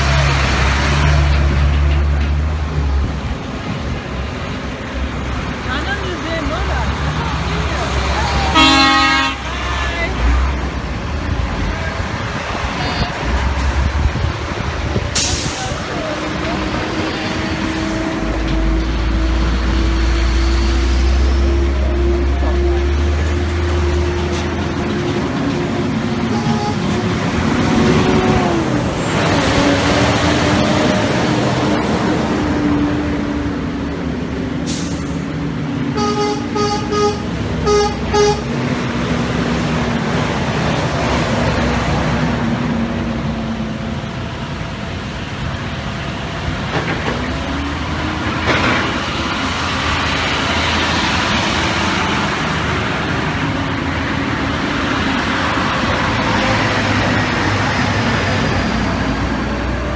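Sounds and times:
diesel trucks driving past: 0.0 - 59.9
truck horn toots: 8.5 - 10.0, 26.2 - 27.2, 35.9 - 38.5.

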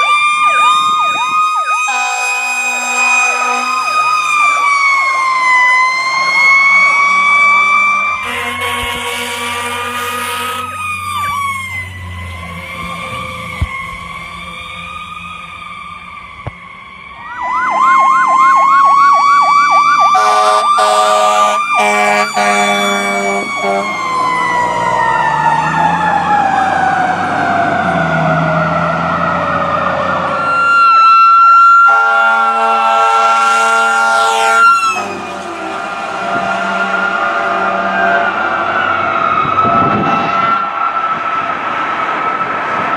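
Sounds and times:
fire engine siren: 0.0 - 42.9
air horn blasts: 1.8 - 4.0, 8.2 - 11.4, 20.0 - 24.0, 31.8 - 38.4.

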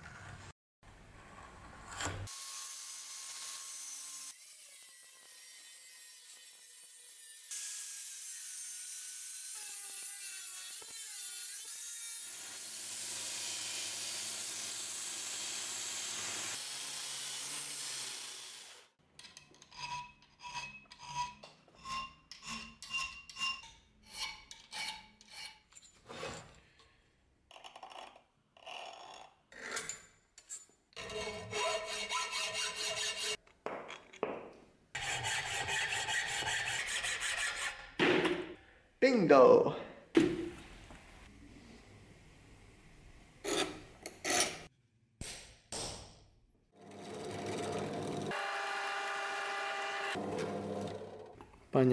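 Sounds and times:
angle grinder cutting steel: 2.3 - 25.6, 47.2 - 51.3
hacksaw sawing through steel: 2.3 - 25.7, 31.0 - 33.4, 35.0 - 37.9, 47.2 - 50.2
file rasping on steel: 19.3 - 25.7, 31.0 - 33.4, 35.0 - 38.0.

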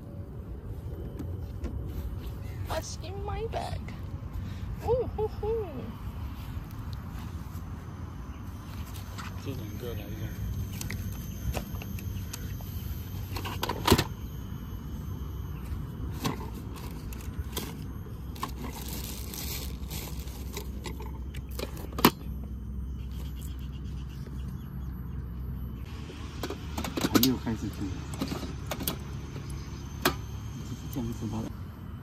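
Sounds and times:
plastic bag rustling: 16.6 - 20.8.

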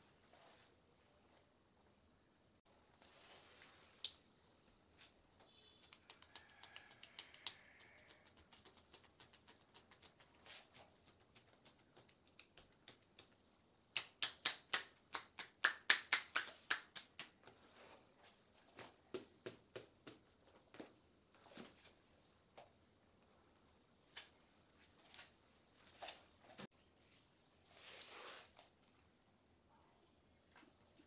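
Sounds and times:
hands clapping on arm: 5.8 - 17.6.

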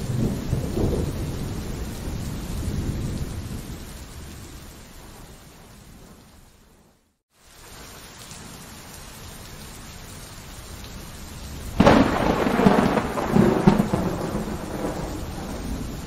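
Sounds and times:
thunderclap rumbling: 0.0 - 7.0, 11.7 - 16.0
steady rain: 0.0 - 16.0.

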